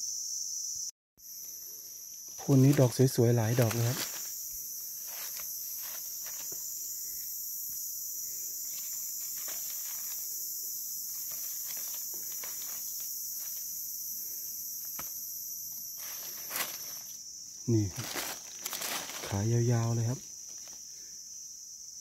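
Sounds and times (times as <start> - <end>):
insects chirping: 0.0 - 22.0
dry leaves crackling: 2.3 - 6.8, 8.6 - 13.9, 15.8 - 20.8.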